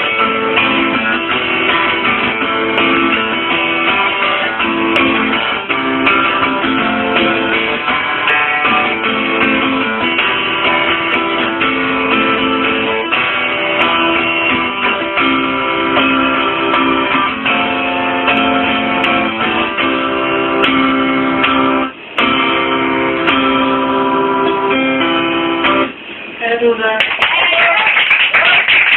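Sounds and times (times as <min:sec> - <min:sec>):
acoustic guitar chords: 0:00.0 - 0:26.5.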